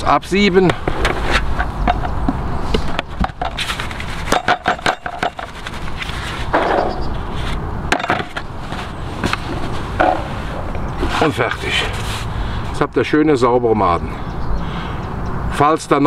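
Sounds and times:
riddle and plastic tubs clattering: 2.9 - 6.9.

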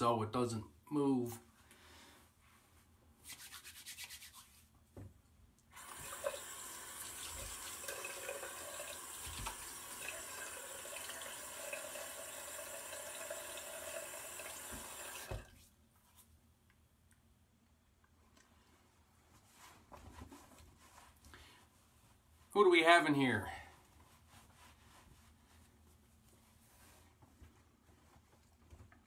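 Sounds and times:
tap water running into sink: 5.8 - 15.5.

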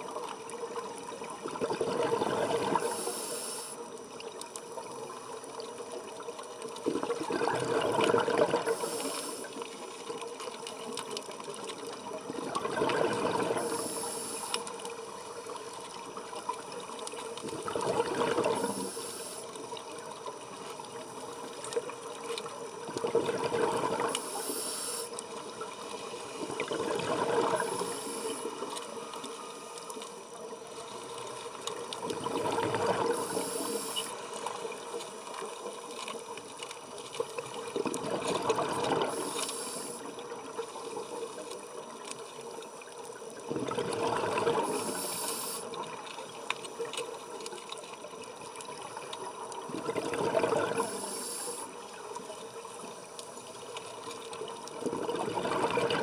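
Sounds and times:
rush of air bubbles: 1.4 - 3.1, 6.8 - 9.6, 12.3 - 14.1, 17.4 - 18.9, 22.8 - 24.5, 26.4 - 28.6, 32.0 - 33.9, 37.7 - 39.4, 43.4 - 46.0, 49.6 - 51.7, 54.7 - 56.0
scuba regulator breathing: 2.7 - 3.8, 8.6 - 9.6, 13.5 - 14.7, 18.4 - 19.5, 24.0 - 25.2, 25.9 - 29.8, 33.0 - 34.2, 39.0 - 40.1, 44.6 - 45.8, 50.7 - 51.8.

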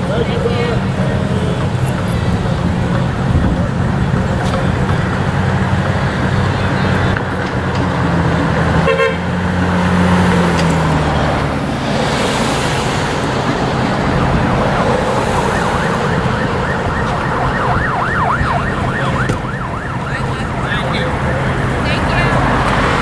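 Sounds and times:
low vehicle engine hum: 0.0 - 23.0
street traffic noise: 0.0 - 23.0
siren in a fast yelp: 14.0 - 22.6.

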